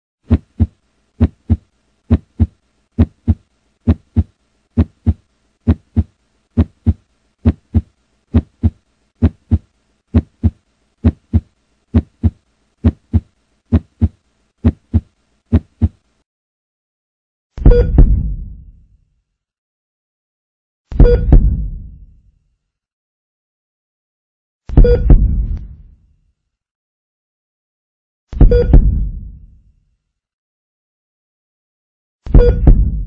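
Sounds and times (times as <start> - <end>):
slow heartbeat: 0.3 - 16.0, 17.6 - 18.7, 21.0 - 22.0, 24.7 - 25.8, 28.4 - 29.4, 32.3 - 33.0.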